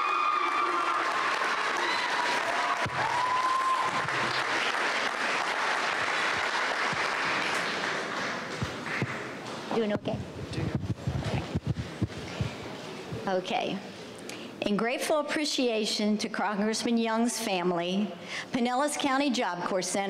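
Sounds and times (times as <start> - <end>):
large crowd applauding: 0.0 - 9.4.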